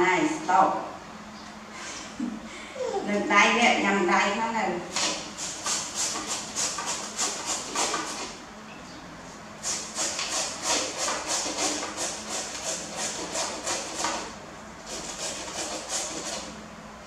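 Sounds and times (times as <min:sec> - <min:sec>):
potato rasping on a grater: 0:09.6 - 0:16.5.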